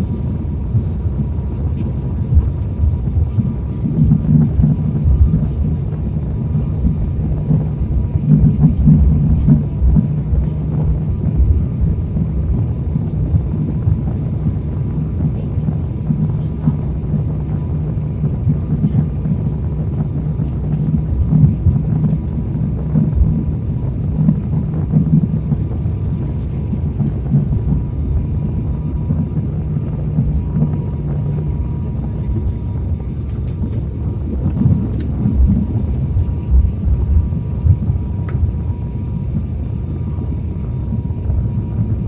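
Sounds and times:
engine and airflow rumble: 0.0 - 42.0
steady low hum: 0.0 - 42.0.

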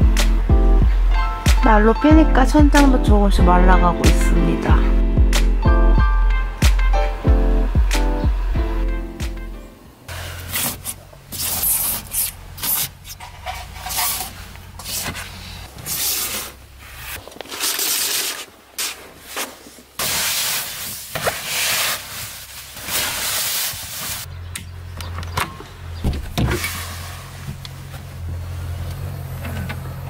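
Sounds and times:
fabric rustling and swishing: 13.5 - 24.3.

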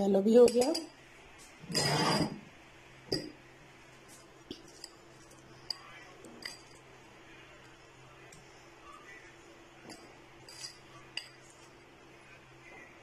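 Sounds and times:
metal spoon clinking on glass bowl: 0.4 - 0.9, 9.9 - 11.4
spoon scraping: 1.6 - 2.4, 9.9 - 11.8.

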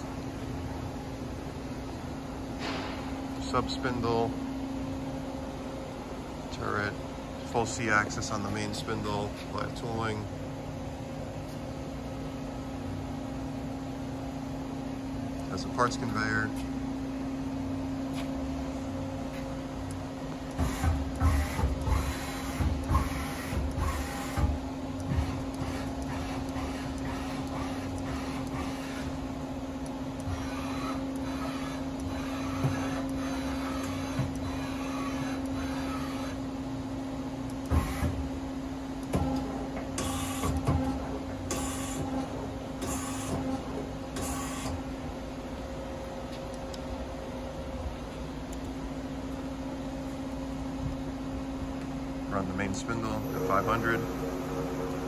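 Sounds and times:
machine humming: 0.0 - 55.0
short whirring bursts: 20.5 - 29.2, 30.2 - 36.5, 37.6 - 38.3, 40.0 - 40.7, 41.5 - 42.2.

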